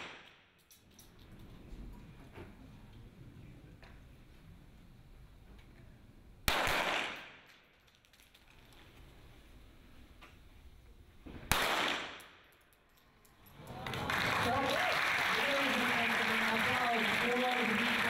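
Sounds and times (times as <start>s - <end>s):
pistol shots ringing in hall: 0.0s - 0.5s, 6.5s - 7.6s, 11.5s - 12.5s.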